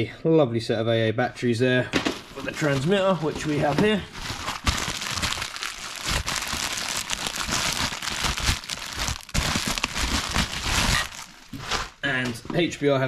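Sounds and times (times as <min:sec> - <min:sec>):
packaging crinkling: 0:02.0 - 0:12.0.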